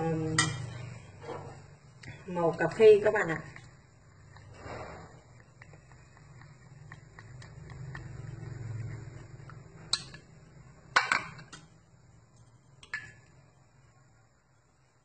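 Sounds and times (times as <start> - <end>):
chopsticks stirring liquid in bowl: 2.9 - 10.4.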